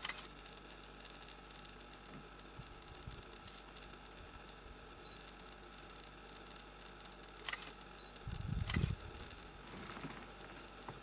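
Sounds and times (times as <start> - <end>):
sharp camera clicks: 0.0 - 1.7, 6.4 - 9.4
camera handling noise: 8.6 - 9.0.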